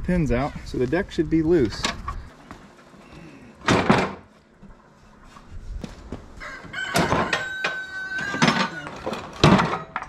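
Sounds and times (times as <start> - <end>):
metal mower deck clunk: 8.3 - 10.0.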